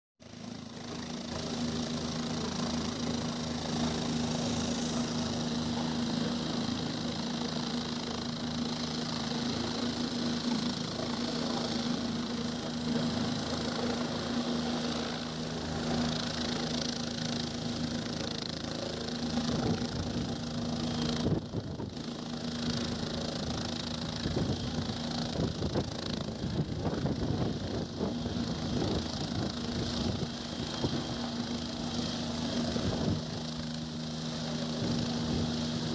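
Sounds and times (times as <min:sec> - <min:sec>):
helicopter engine hum and whine: 0:00.2 - 0:35.9.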